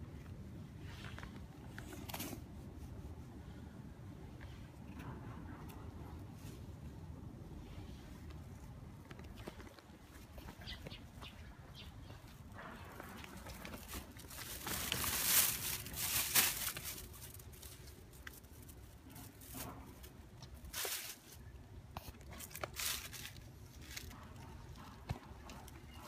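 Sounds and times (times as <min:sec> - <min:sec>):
plastic bag crinkling: 0:13.4 - 0:21.5, 0:22.3 - 0:24.2.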